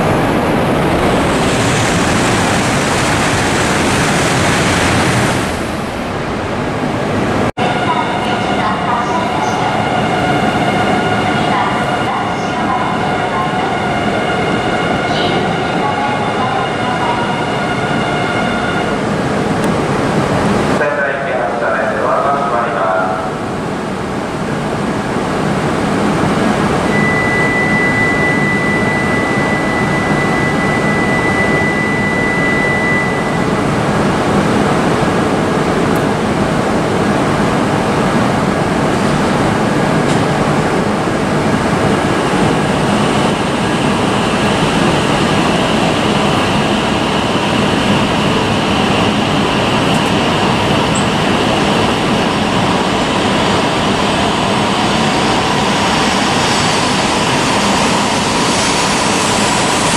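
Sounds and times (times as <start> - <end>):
train running loudly: 0.0 - 59.9
steady high tone: 7.6 - 19.1, 26.9 - 34.0.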